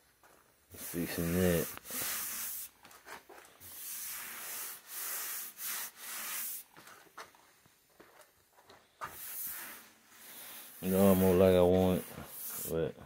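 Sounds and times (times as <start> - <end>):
hand sanding car body panel: 10.5 - 12.8.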